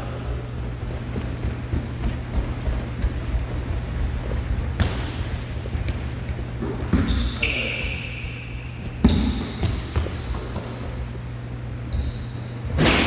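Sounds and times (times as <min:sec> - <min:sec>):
sneakers squeaking: 0:00.0 - 0:13.0
basketball bouncing on wooden floor: 0:00.6 - 0:06.0, 0:08.3 - 0:11.0.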